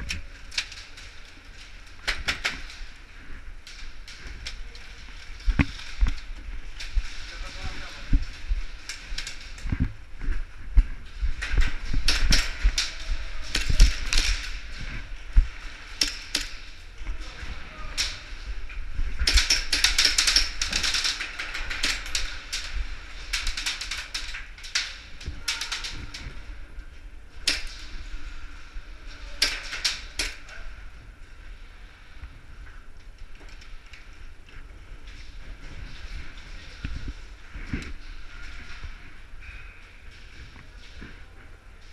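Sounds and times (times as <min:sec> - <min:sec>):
scuffing and handling noise: 0:00.0 - 0:15.9
clothing and gear rustling: 0:00.0 - 0:29.4, 0:30.0 - 0:41.9
sharp clicks and knocks: 0:02.0 - 0:02.9, 0:10.8 - 0:16.7, 0:18.7 - 0:26.4.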